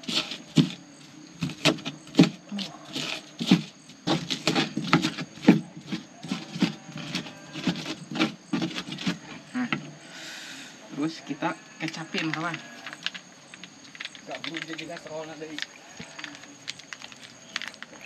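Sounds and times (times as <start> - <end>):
pestle knocking in mortar: 0.0 - 0.8, 1.4 - 10.0.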